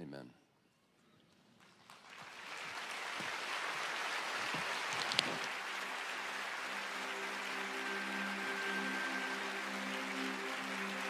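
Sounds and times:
congregation applauding: 0:01.3 - 0:11.0
crowd cheering: 0:01.9 - 0:11.0.

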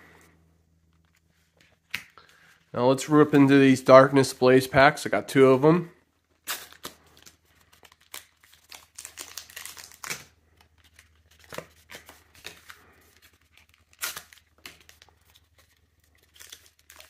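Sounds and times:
plastic packaging tearing and crinkling: 0:06.4 - 0:17.0.

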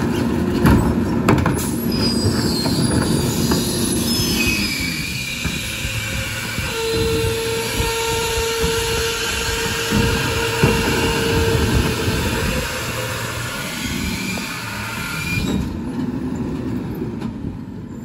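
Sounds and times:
diesel engine running: 0:00.0 - 0:17.9
high hydraulic whine: 0:00.0 - 0:18.0
metallic squeals: 0:01.6 - 0:15.8.

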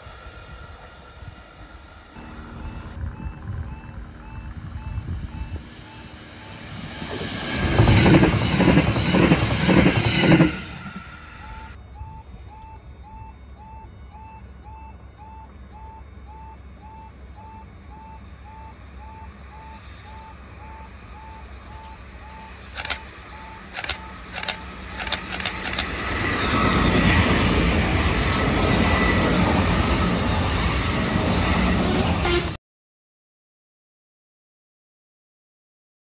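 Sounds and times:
train wheels rumbling on rail: 0:00.0 - 0:11.8, 0:23.7 - 0:32.6
faint train whine: 0:00.0 - 0:32.6
level crossing alarm: 0:02.2 - 0:07.0, 0:11.2 - 0:30.8
sharp clicks: 0:22.3 - 0:23.0, 0:23.7 - 0:26.0.

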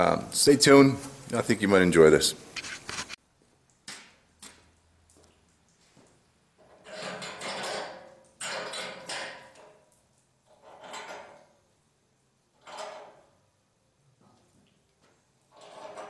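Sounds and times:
metal scraping and sliding on metal: 0:06.6 - 0:09.7, 0:10.5 - 0:11.5, 0:15.5 - 0:16.0.

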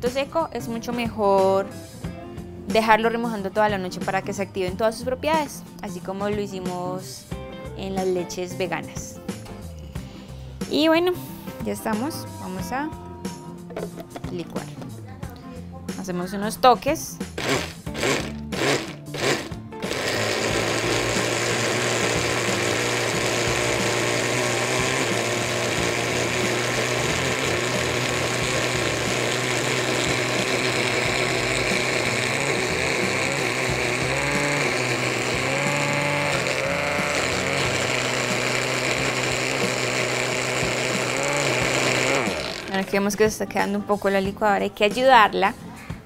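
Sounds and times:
blender motor straining: 0:17.4 - 0:42.9.

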